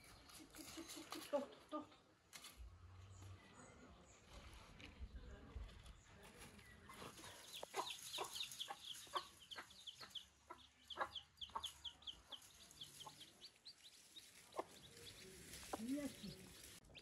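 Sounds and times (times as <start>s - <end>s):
chicks peeping: 6.5s - 17.0s
hen clucking: 6.9s - 16.7s.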